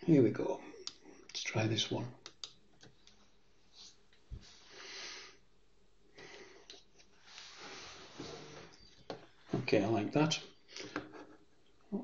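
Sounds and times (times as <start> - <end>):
computer mouse clicks: 2.2 - 3.2
breath drawn in: 6.2 - 8.9.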